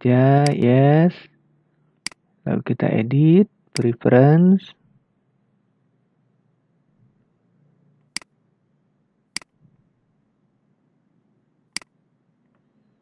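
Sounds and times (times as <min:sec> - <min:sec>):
faint low room hum: 0:00.0 - 0:13.0.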